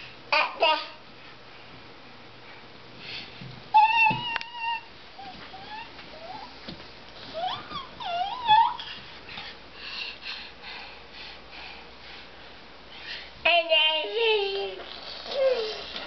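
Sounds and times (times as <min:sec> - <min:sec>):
toddler squealing calls: 0:03.8 - 0:06.5.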